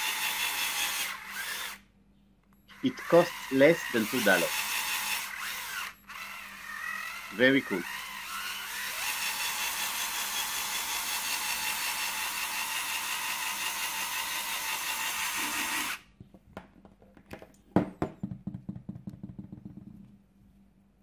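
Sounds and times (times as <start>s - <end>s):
cordless drill whirring: 0.0s - 1.8s, 2.7s - 16.1s.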